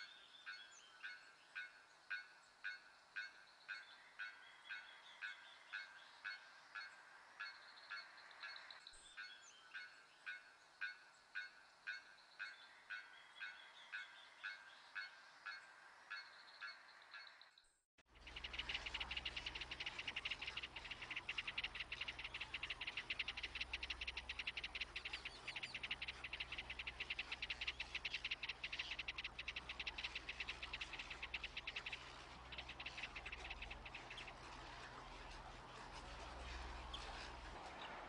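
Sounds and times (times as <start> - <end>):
low steady hum: 18.1 - 38.0
insects trilling: 18.2 - 34.5.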